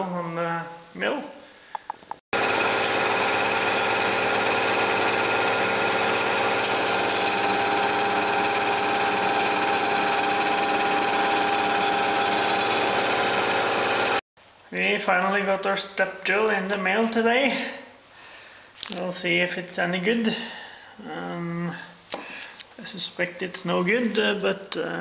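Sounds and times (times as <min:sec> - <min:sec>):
milling machine cutting metal: 0:02.4 - 0:14.2.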